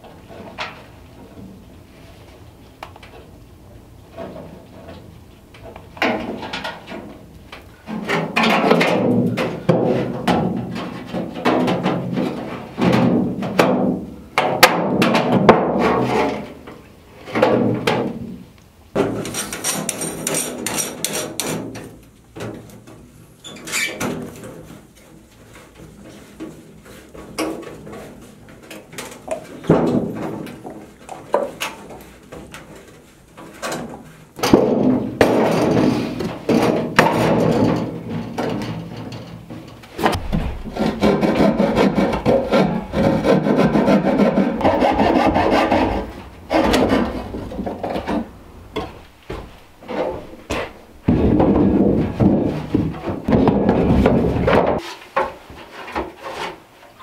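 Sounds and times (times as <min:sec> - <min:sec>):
copper sheet being hammered: 0:40.0 - 0:44.3.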